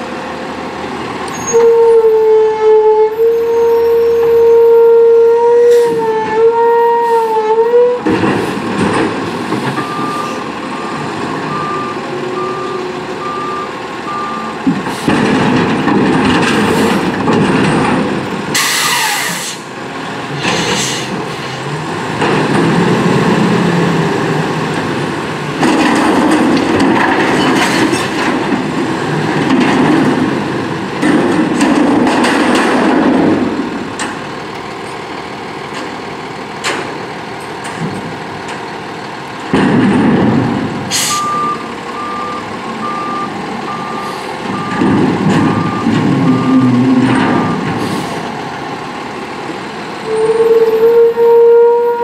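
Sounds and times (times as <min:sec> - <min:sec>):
garbage truck running: 0:00.0 - 0:02.5, 0:07.6 - 0:51.4
backup alarm beeping: 0:09.8 - 0:14.6, 0:41.0 - 0:44.8, 0:45.6 - 0:47.7.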